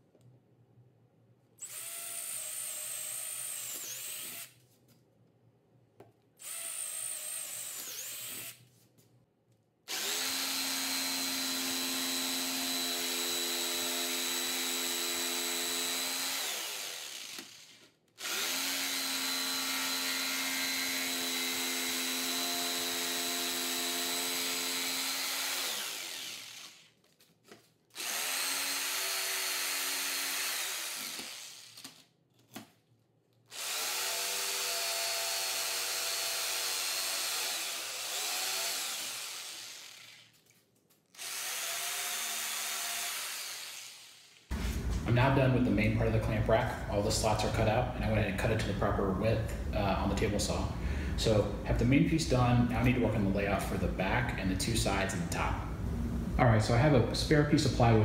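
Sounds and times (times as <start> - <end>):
jigsaw cutting plywood: 6.5 - 8.6, 9.9 - 26.9, 28.0 - 32.6, 33.5 - 40.4, 41.1 - 45.3
motor winding down: 24.6 - 26.9.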